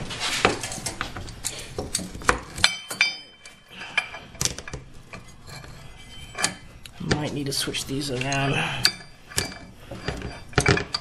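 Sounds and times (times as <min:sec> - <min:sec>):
metal clicks and clinks: 0:00.6 - 0:06.6.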